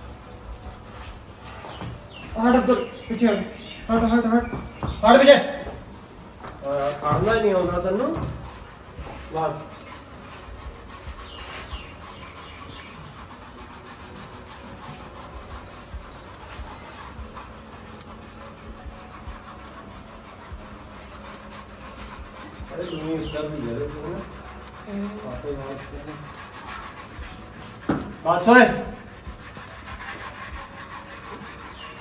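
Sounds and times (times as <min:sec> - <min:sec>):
hand rubbing horse coat: 0:00.0 - 0:32.0.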